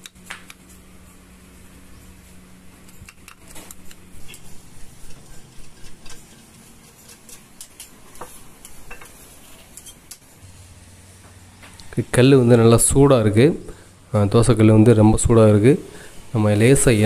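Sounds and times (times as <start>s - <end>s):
kitchen utensils knocking and scraping: 4.1s - 10.0s.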